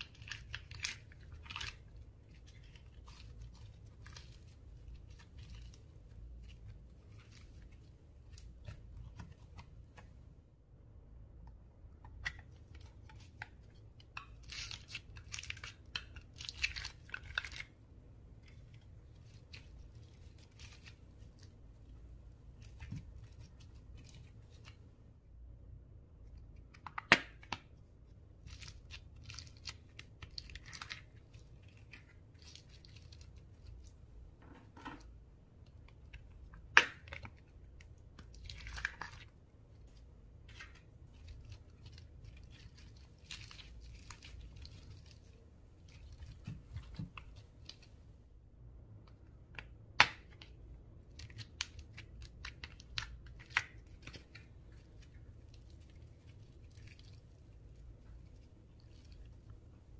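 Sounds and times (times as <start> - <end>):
slime crackling and tearing: 0.0 - 9.3, 12.3 - 17.8, 28.4 - 33.9, 36.6 - 46.5, 51.1 - 59.3.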